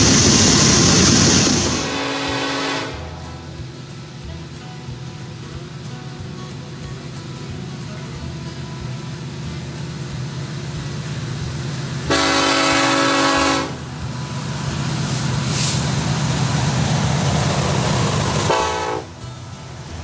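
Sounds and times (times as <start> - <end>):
diesel locomotive engines rumbling: 0.0 - 20.0
locomotive horn blast: 1.2 - 3.9, 12.0 - 14.0, 18.3 - 19.3.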